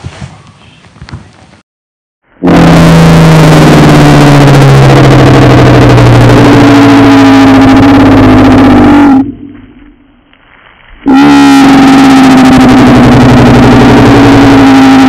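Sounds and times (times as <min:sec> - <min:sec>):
faint low rumble: 0:02.2 - 0:15.0
loud distorted roar: 0:02.4 - 0:10.4, 0:11.0 - 0:15.0.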